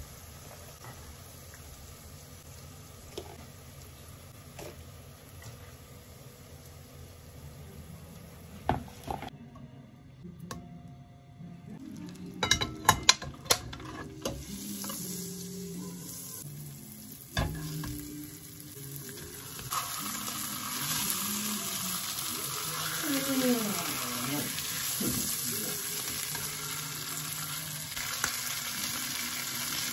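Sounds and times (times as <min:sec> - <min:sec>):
food sizzling in hot oil: 0:14.2 - 0:29.9.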